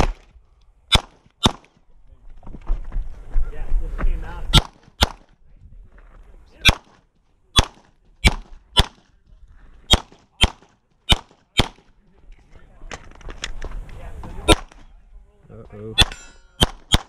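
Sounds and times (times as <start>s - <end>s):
pistol shots: 0.0s - 0.3s, 0.9s - 1.8s, 4.5s - 5.3s, 6.6s - 9.1s, 9.9s - 11.9s, 14.5s - 14.8s, 16.0s - 17.0s.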